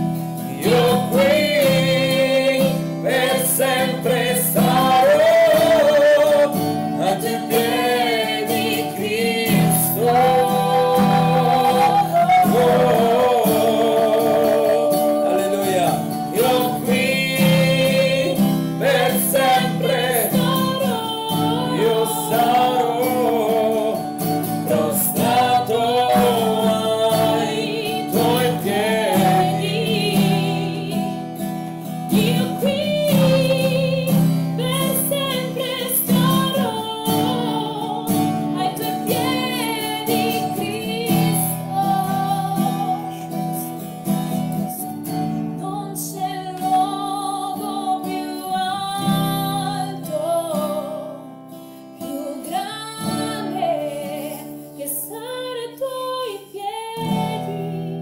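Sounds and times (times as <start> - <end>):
woman and man singing: 0.0 - 51.4, 52.0 - 58.0
strummed acoustic guitar: 0.0 - 58.0.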